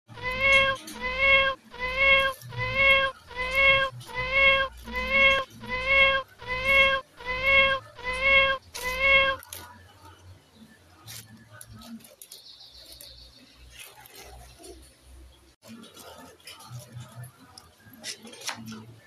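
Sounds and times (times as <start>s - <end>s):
cat meow: 0.1s - 9.5s.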